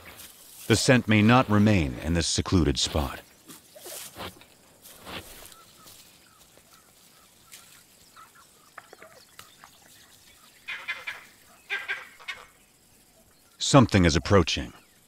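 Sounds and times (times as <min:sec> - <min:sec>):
monkey alarm calls: 0:10.5 - 0:12.5.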